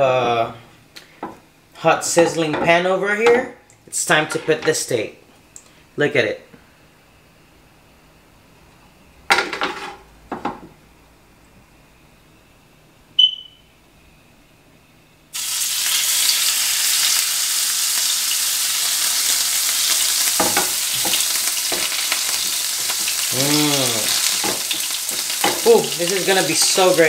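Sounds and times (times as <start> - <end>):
meat searing sizzle: 15.3 - 27.0.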